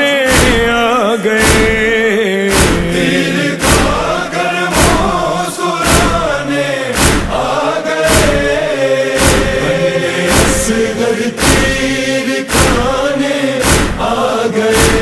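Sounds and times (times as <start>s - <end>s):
male chorus singing lament: 0.0s - 15.0s
heavy regular beat: 0.3s - 15.0s.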